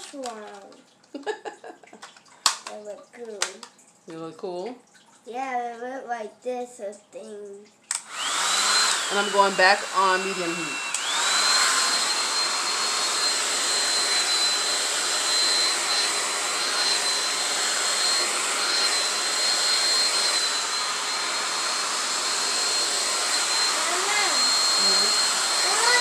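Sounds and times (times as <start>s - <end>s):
hair dryer blowing: 7.9s - 26.0s.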